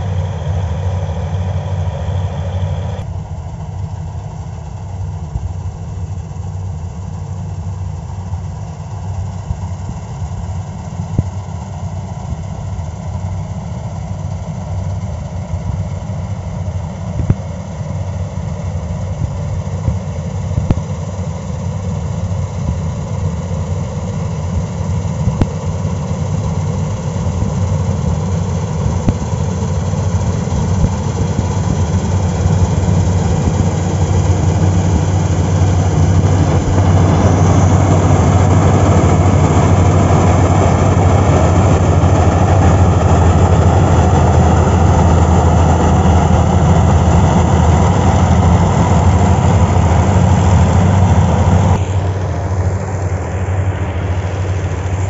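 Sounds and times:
combine harvester engine drone: 0:00.0 - 0:55.0.

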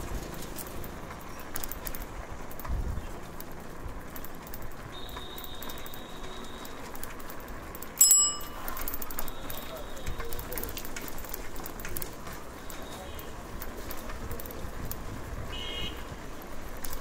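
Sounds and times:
street background noise: 0:00.0 - 0:17.0
bell ringing: 0:08.0 - 0:09.1
faint clicks: 0:08.7 - 0:15.1.

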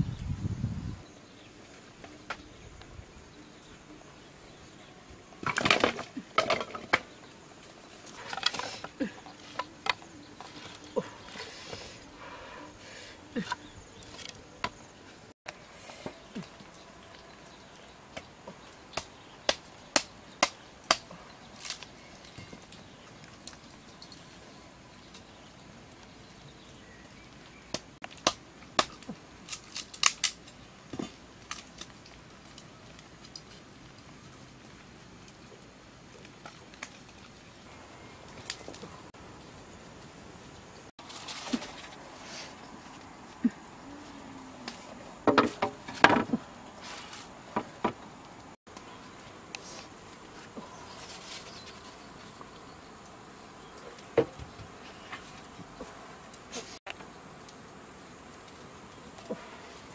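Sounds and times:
firewood sticks knocking together: 0:05.4 - 0:07.2, 0:08.0 - 0:11.5, 0:44.7 - 0:46.4.

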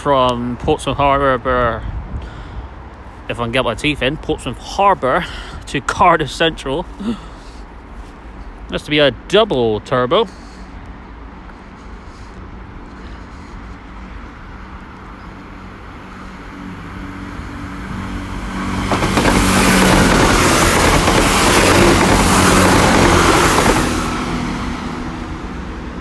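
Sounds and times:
diesel train engine hum: 0:02.7 - 0:26.0
rush of train wheels and air: 0:10.4 - 0:26.0.

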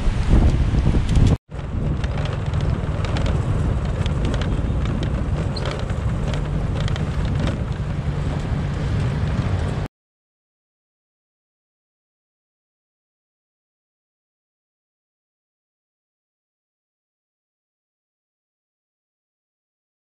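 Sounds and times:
road noise: 0:00.0 - 0:09.9
wind buffeting microphone: 0:00.0 - 0:09.9
motorcycle engine: 0:01.1 - 0:09.9.

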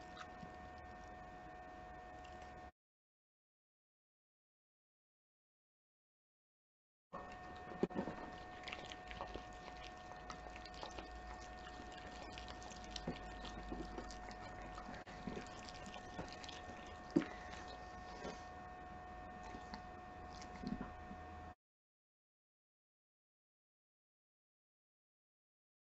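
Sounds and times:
dog chewing wetly: 0:00.0 - 0:01.0, 0:07.2 - 0:18.6, 0:19.3 - 0:21.2
faint electrical hum: 0:07.2 - 0:21.6.

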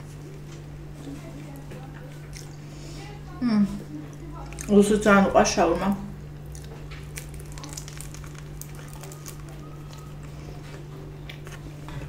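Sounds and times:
steady low hum: 0:00.0 - 0:12.0
chewing crackles and clicks: 0:01.6 - 0:02.6, 0:04.1 - 0:04.8, 0:06.4 - 0:11.7.

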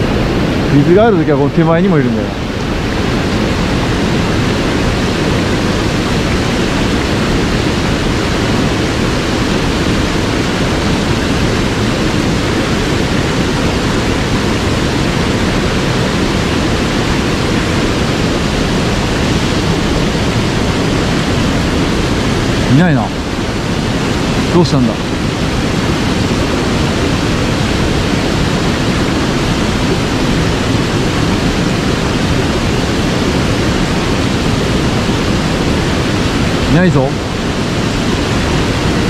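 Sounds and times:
stream rushing water: 0:00.0 - 0:39.0.

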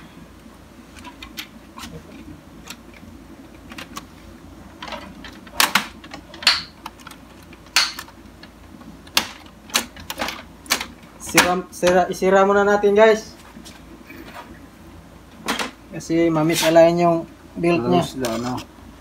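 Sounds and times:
printer parts clicking and clacking: 0:04.8 - 0:12.0.

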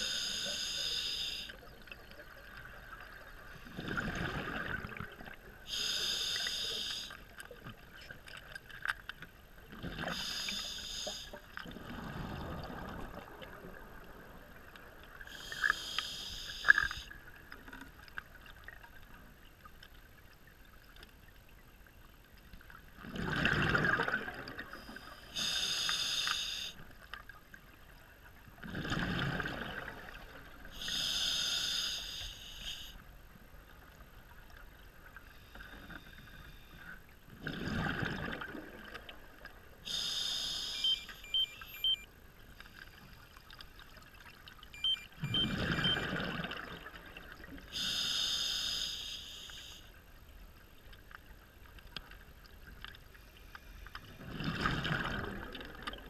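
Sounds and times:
regulator inhalation hiss: 0:00.0 - 0:01.5, 0:05.7 - 0:07.2, 0:10.1 - 0:11.4, 0:15.3 - 0:17.1, 0:25.4 - 0:26.8, 0:30.8 - 0:33.0, 0:39.9 - 0:41.2, 0:47.8 - 0:49.9.

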